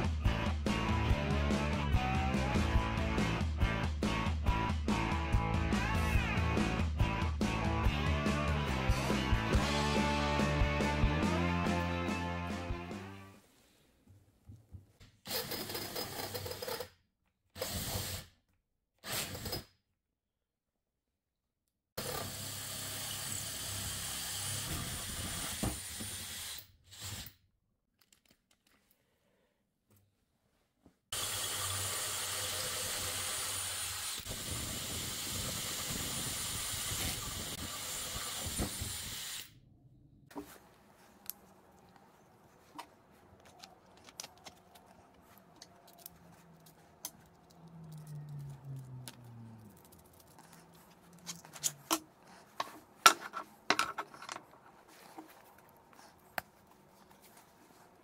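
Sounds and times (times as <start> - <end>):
drill cutting through wood: 22.0 - 27.3, 31.2 - 39.6.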